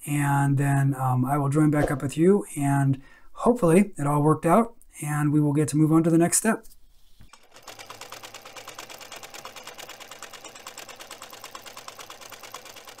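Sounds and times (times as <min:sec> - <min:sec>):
sewing machine clattering: 0:07.3 - 0:13.0.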